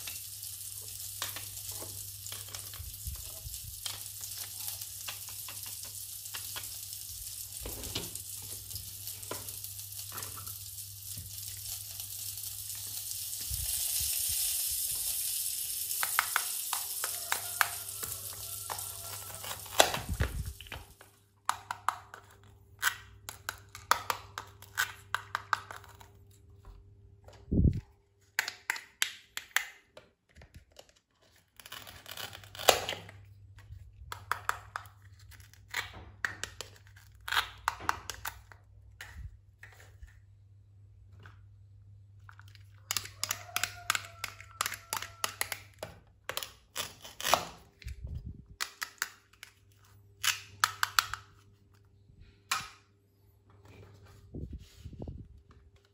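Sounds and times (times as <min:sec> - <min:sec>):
plastic toy food clicks and taps: 0:42.9 - 0:46.6.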